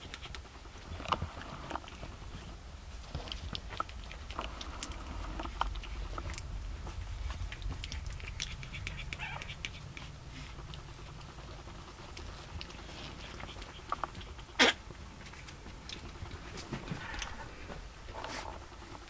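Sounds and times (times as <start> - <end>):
puppies scuffling on bedding: 11.3 - 19.0.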